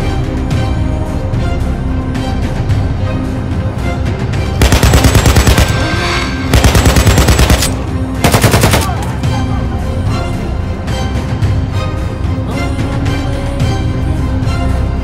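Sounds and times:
background music: 0.0 - 15.0
automatic rifle fire: 4.6 - 5.8, 6.5 - 9.1.

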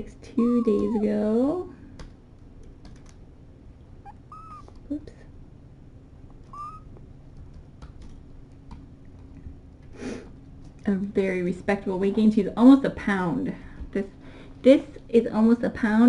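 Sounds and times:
kittens mewing: 0.4 - 1.3, 4.0 - 4.8, 6.4 - 7.0.

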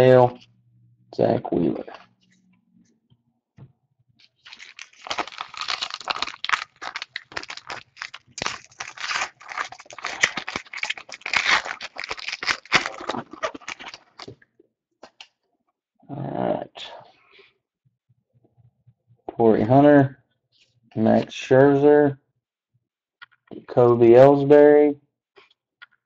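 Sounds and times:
foil wrapper crinkling: 4.2 - 14.3.

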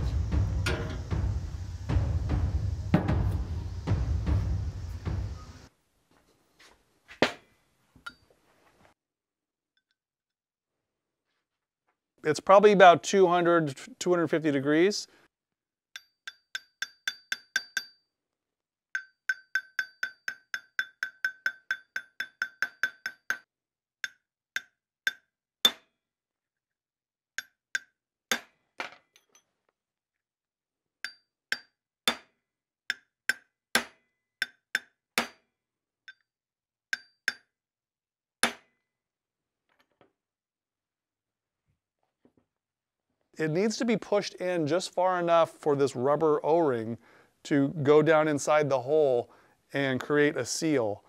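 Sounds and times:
hammer striking metal: 0.0 - 1.9, 2.7 - 5.6, 19.0 - 23.4, 37.0 - 37.5.

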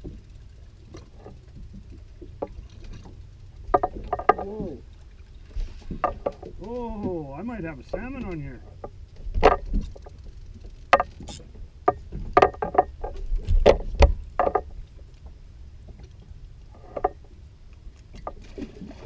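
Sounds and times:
wind and water rumble: 0.0 - 19.0
fishing tackle knocking in boat: 2.2 - 4.8, 10.9 - 14.8.

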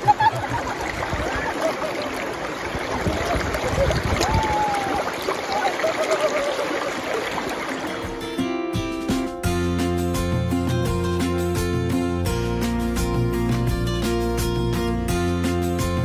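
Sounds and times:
river water rushing over shallows: 0.0 - 8.7.

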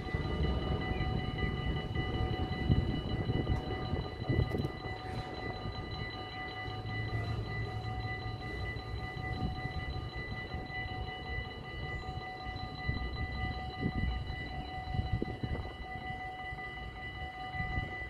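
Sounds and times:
diesel locomotive rumbling: 0.0 - 18.0
level crossing warning tone: 0.0 - 18.0.

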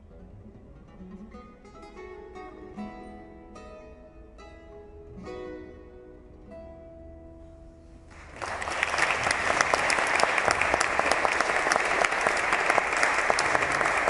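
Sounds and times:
audience applause: 8.1 - 14.0.

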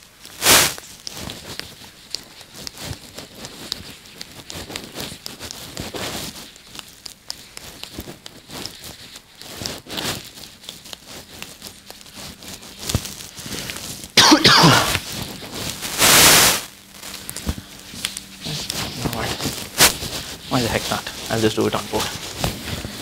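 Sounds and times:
faint clicks and rustles: 0.0 - 14.2, 14.9 - 23.0
man coughing: 14.2 - 15.0.

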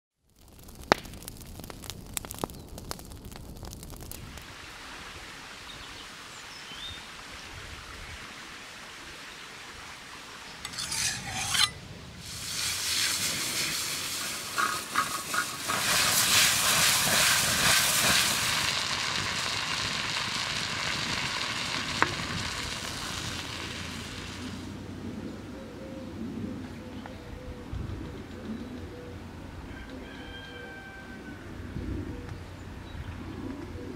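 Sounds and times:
food sizzling in a pan: 10.7 - 24.6.

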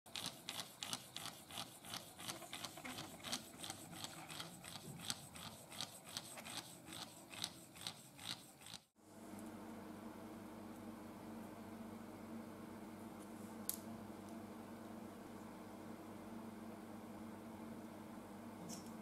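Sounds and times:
light rubbing of moving parts: 0.1 - 8.8.

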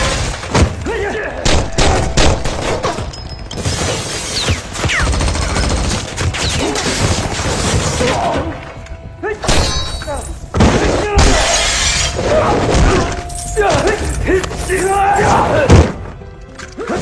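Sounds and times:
film music: 0.0 - 17.0
glass shattering and crashing: 9.5 - 15.2.

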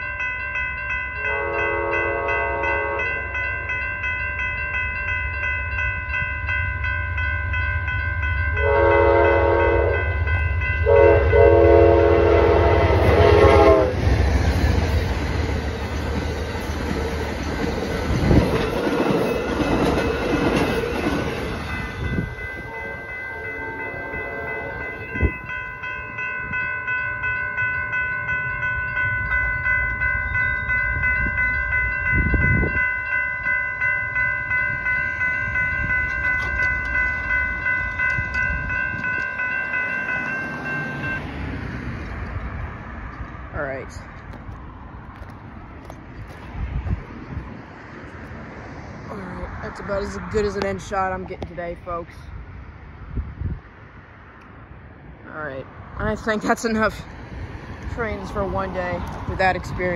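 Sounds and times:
railroad crossing bells ringing: 0.0 - 52.4, 54.7 - 59.9
train horn blasts: 1.2 - 3.3, 8.6 - 14.1, 22.1 - 25.5
train wheels rushing and clattering: 12.8 - 22.7.

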